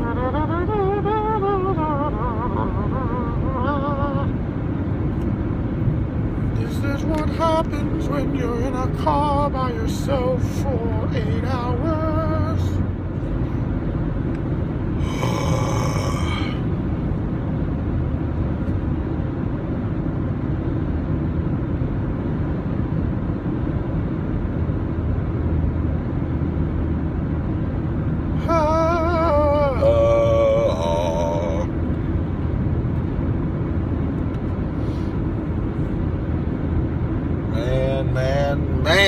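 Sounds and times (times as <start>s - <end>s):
man singing wavering note: 0.0s - 4.3s, 28.4s - 31.7s
road and engine rumble in car: 0.0s - 39.0s
man's voice: 28.4s - 31.7s, 37.5s - 39.0s.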